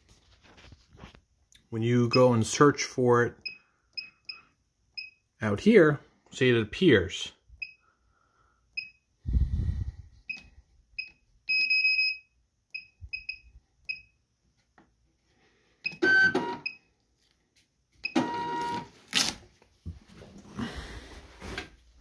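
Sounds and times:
scale beeping: 10.3 - 14.2.

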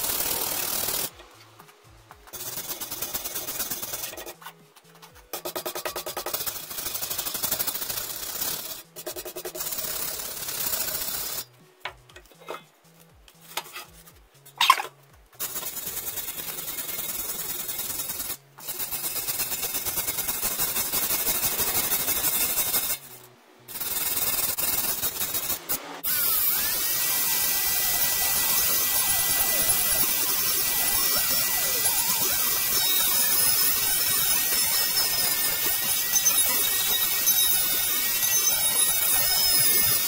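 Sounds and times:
hand tool scraping rust off metal: 1.7 - 11.5, 13.5 - 40.0
angle grinder whining: 26.1 - 40.0.

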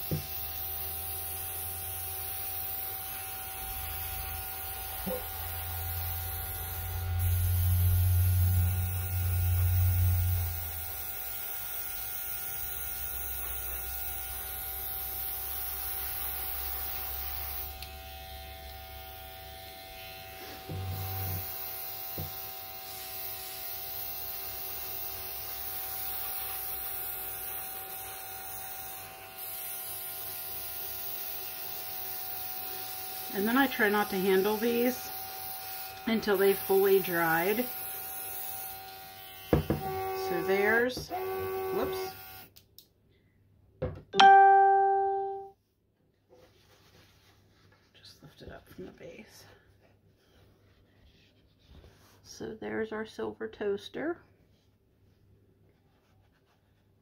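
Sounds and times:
compressor electric hum: 0.0 - 11.8.

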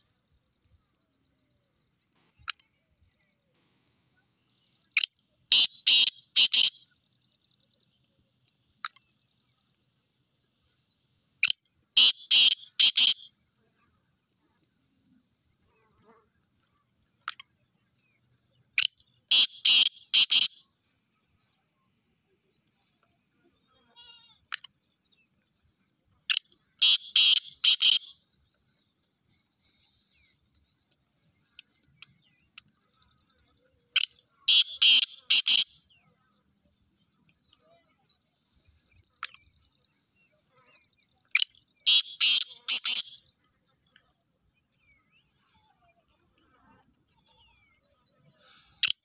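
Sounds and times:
francolin calling: 4.5 - 7.1, 11.3 - 13.5, 17.2 - 28.6, 29.5 - 38.2, 40.8 - 43.9.

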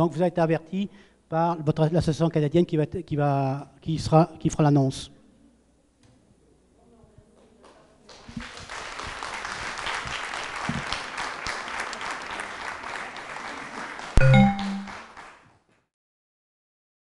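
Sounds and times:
audience applauding: 8.0 - 15.6
short pitched tone: 14.2 - 15.0.

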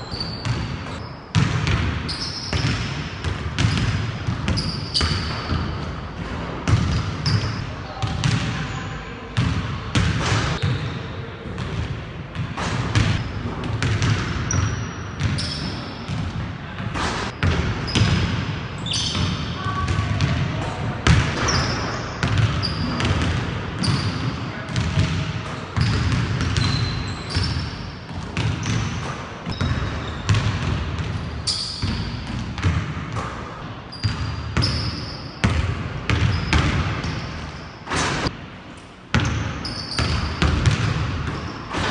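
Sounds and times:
basketball bouncing on hardwood floor: 13.0 - 15.4, 21.0 - 24.0, 24.7 - 31.2, 35.4 - 36.9, 40.0 - 41.4.

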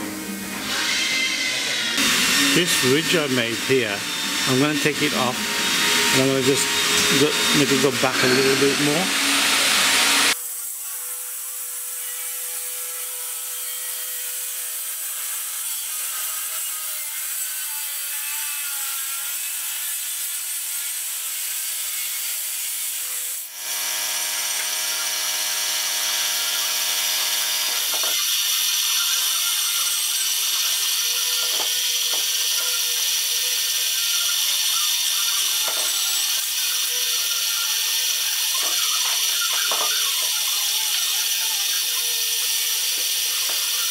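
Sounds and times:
lathe running with whining tones: 0.0 - 10.4.

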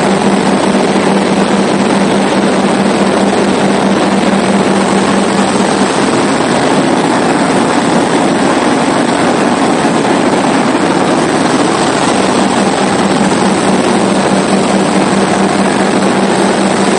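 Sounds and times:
aircraft engine and propeller drone: 0.0 - 16.9
constant low hum: 0.0 - 16.9
rushing airflow: 0.0 - 16.9.

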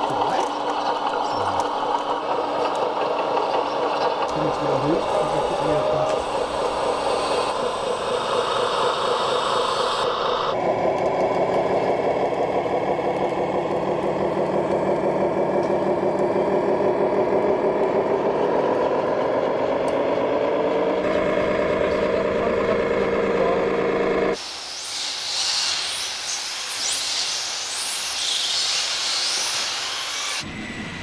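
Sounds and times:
simulated diesel truck engine: 0.0 - 24.4.

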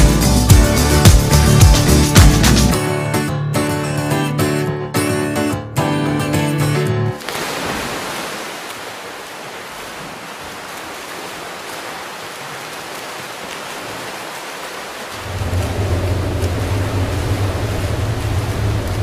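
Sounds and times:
guitar music: 0.0 - 7.2
rushing water: 7.2 - 19.0.

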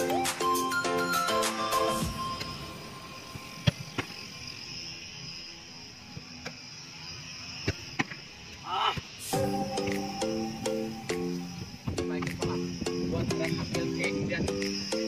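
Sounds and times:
music with mallet-like notes: 0.0 - 2.8, 9.3 - 15.0
steady high hiss: 0.0 - 15.0
brief wavering call: 9.3 - 11.7.

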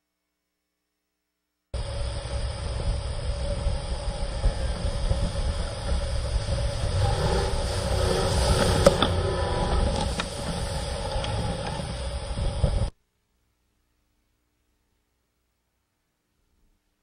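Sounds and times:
boat diesel engines running: 1.8 - 12.9
wind buffeting microphone: 1.8 - 12.9
water rushing: 5.7 - 12.9.

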